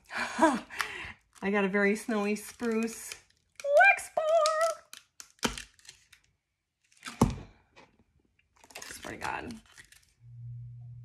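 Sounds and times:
plastic clamshell cracking open: 2.5s - 6.3s
woman's high-pitched vocal sound: 3.6s - 4.8s.

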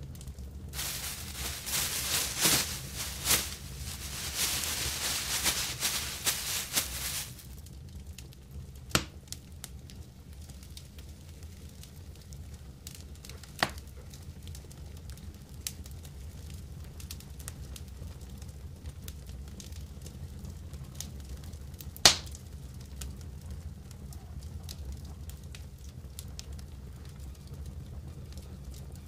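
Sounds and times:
campfire crackling: 0.1s - 27.7s
sharp wood cracks: 22.0s - 22.4s.

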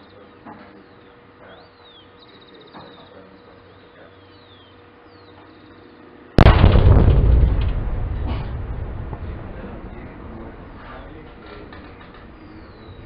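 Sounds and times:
loud low rumble: 6.4s - 13.0s
volcanic explosion bang: 6.4s - 13.0s.

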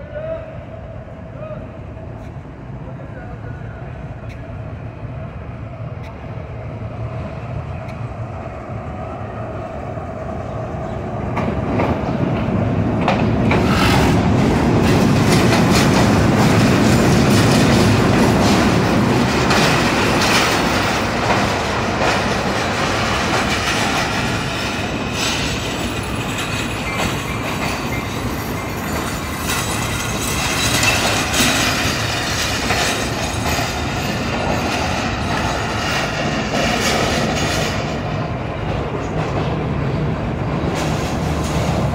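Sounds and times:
train wheels clicking over rail joints: 11.3s - 41.9s.

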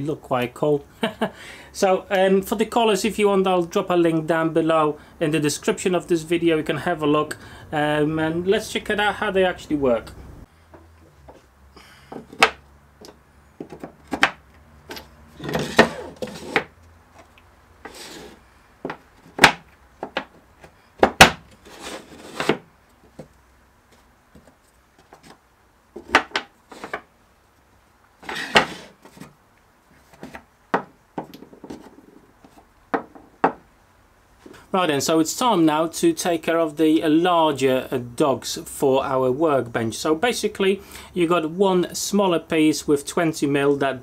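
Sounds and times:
wooden board scraping on plywood: 15.4s - 23.3s, 26.0s - 27.1s, 28.2s - 29.3s, 30.0s - 33.1s.

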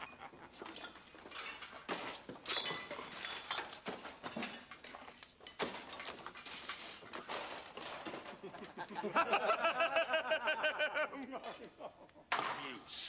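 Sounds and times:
metal tableware clattering: 0.0s - 8.8s.

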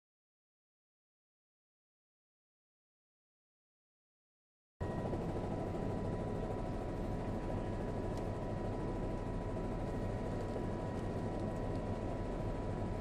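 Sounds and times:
helicopter engine and rotor: 4.8s - 13.0s.

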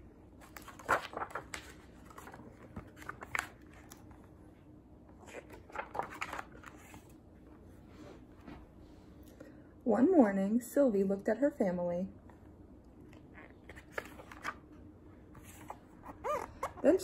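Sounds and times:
book pages turning: 0.4s - 4.4s, 5.1s - 7.2s, 13.0s - 16.8s.

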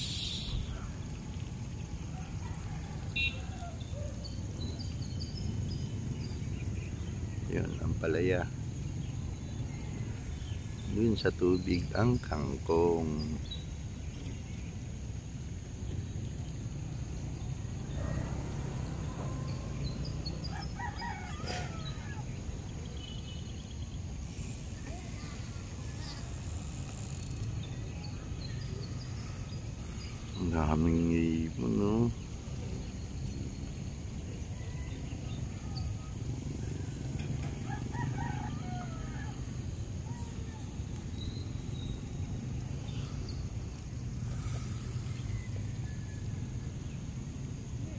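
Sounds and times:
high bird chirps: 0.0s - 0.7s
rooster crowing: 2.2s - 4.0s, 20.4s - 22.3s, 37.4s - 39.6s.

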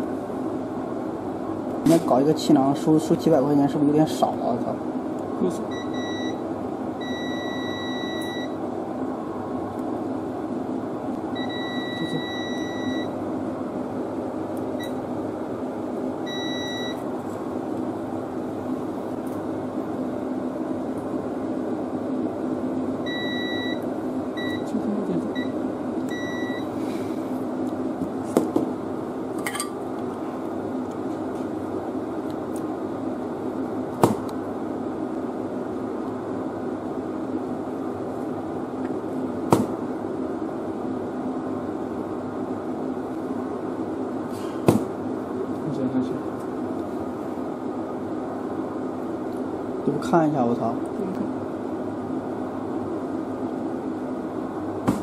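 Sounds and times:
steady hum: 0.0s - 55.0s
multimeter beeping: 5.7s - 6.4s, 7.0s - 8.6s, 11.4s - 13.1s, 16.3s - 17.0s, 23.1s - 23.8s, 26.1s - 26.7s.

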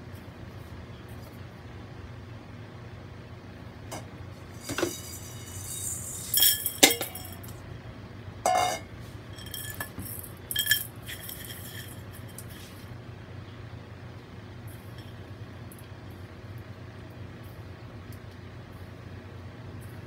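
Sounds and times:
low steady hum: 0.0s - 20.0s
hard objects clinking: 4.5s - 7.6s, 8.5s - 12.8s.

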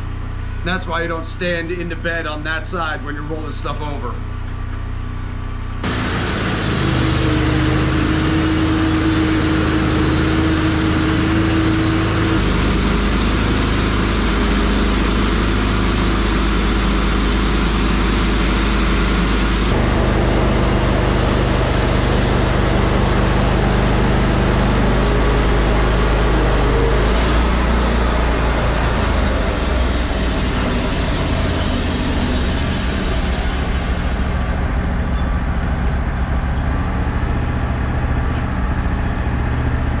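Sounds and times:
bandsaw mill sawing log: 5.8s - 35.1s.

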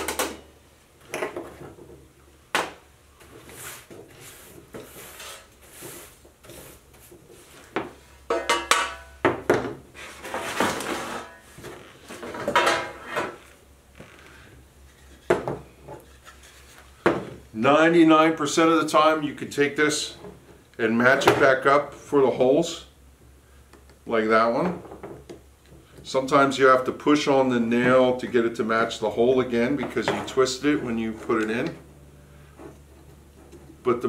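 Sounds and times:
brush sweeping on wood: 3.4s - 7.7s.

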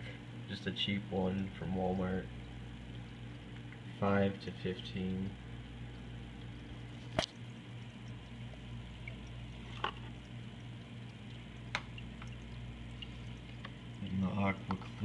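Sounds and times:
aquarium filter motor hum: 0.0s - 15.0s
water trickling and dripping: 0.9s - 15.0s.

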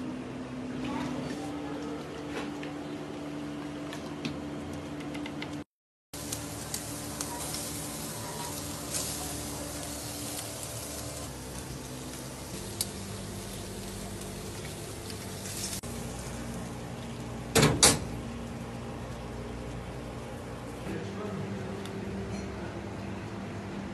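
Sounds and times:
fish sizzling on a grill: 6.2s - 20.8s.

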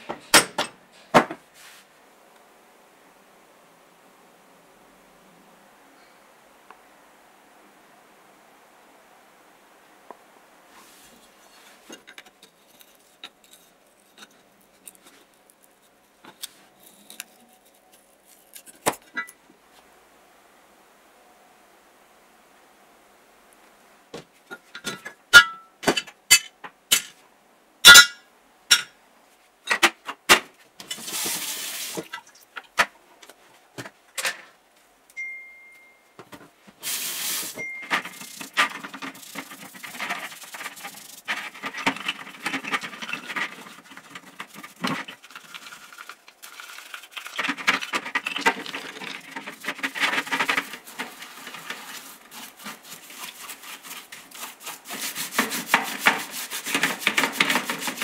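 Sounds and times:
brush scrubbing metal: 30.9s - 32.1s, 36.8s - 58.0s.

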